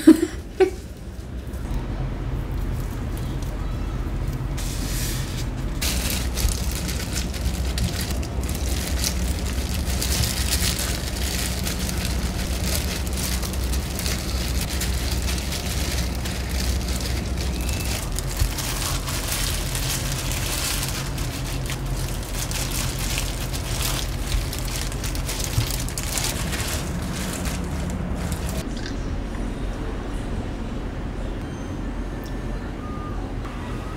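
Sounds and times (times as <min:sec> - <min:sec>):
steady low hum: 0:00.0 - 0:33.9
plastic gloves crinkling: 0:04.6 - 0:28.7
constant crackle: 0:05.8 - 0:28.7.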